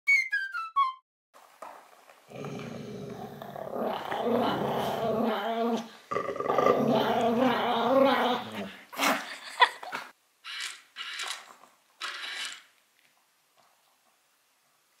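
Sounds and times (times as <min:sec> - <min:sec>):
dog growling: 0:02.3 - 0:09.2.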